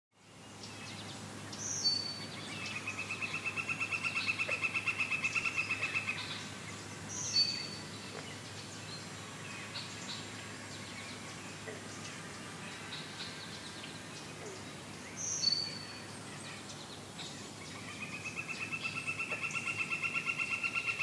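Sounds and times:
faint steady hum: 0:00.2 - 0:21.0.

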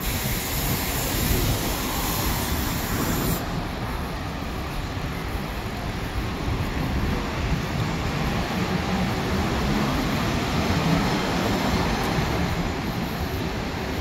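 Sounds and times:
bright hiss: 0:00.0 - 0:07.1
street traffic rumble and hiss: 0:00.0 - 0:14.0.

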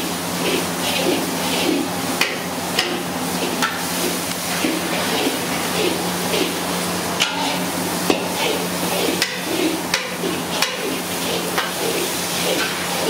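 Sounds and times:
steady sizzle: 0:00.0 - 0:13.0
ladles scraping in a wok: 0:00.2 - 0:13.0
ladle clanking against pots: 0:07.2 - 0:11.0.

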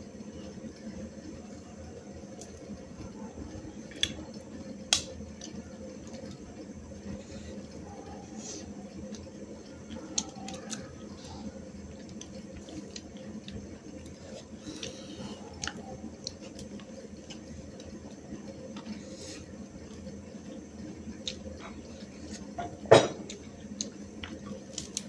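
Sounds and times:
steady low hum: 0:00.0 - 0:25.0
chewing: 0:08.9 - 0:11.3, 0:11.9 - 0:18.0.

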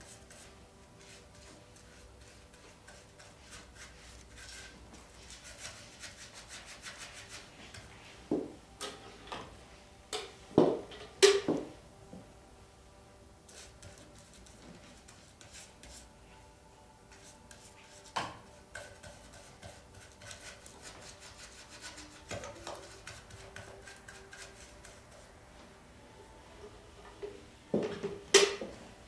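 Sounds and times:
rapid hand rubbing strokes: 0:18.8 - 0:25.4.

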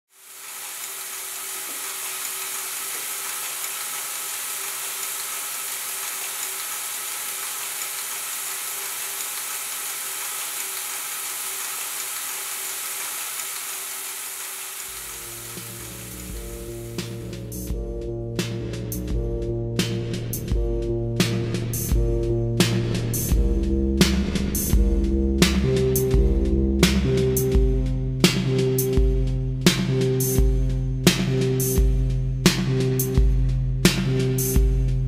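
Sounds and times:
electronic noise hiss: 0:00.1 - 0:17.7
low bass notes: 0:15.0 - 0:35.0.

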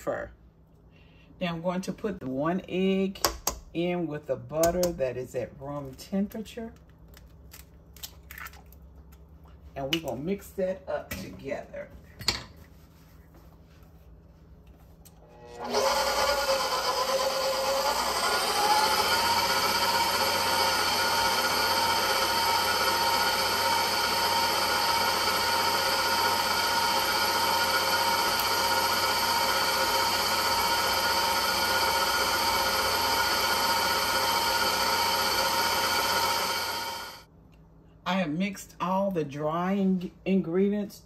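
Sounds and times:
electric stand mixer whining: 0:15.4 - 0:37.2.

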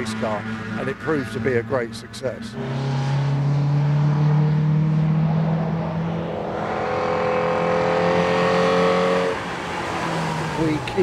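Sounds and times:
race car engine high revs: 0:00.0 - 0:11.0.

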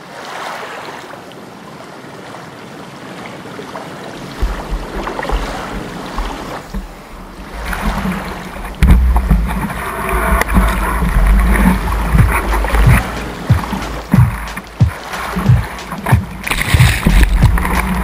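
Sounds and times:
water splashing over camera: 0:03.7 - 0:18.0
wind buffeting microphone: 0:04.2 - 0:18.0.

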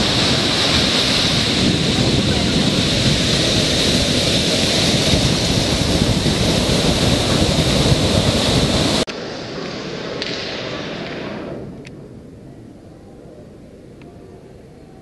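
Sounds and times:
wind buffeting microphone: 0:00.0 - 0:09.1
ocean surf breaking: 0:00.0 - 0:12.1.

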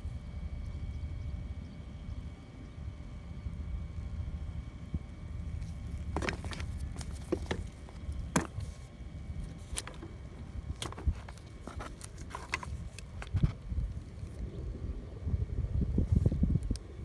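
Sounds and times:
low background rumble: 0:00.0 - 0:17.0
plastic parts clicking and knocking: 0:06.1 - 0:08.7.

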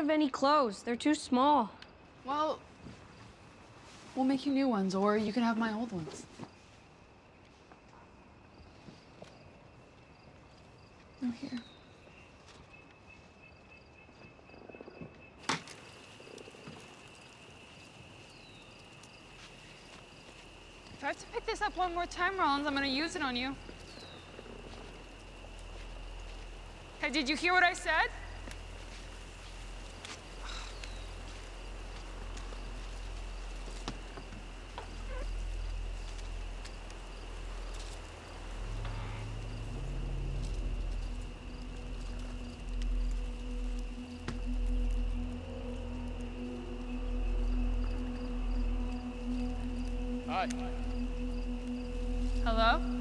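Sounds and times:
insects trilling: 0:00.0 - 0:53.0
faint chirps: 0:11.1 - 0:53.0
low rumble: 0:20.4 - 0:53.0.

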